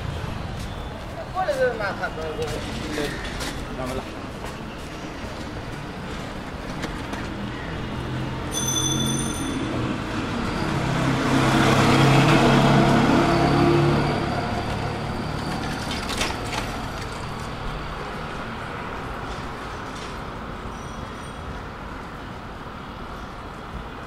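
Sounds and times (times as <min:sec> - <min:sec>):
street traffic: 0:00.0 - 0:24.0
vehicle engine passing close: 0:09.9 - 0:15.3.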